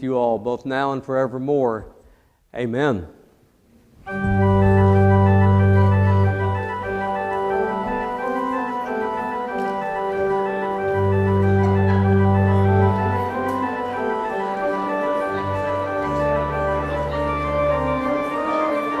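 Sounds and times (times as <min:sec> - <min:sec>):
church organ chords: 0:04.1 - 0:19.0.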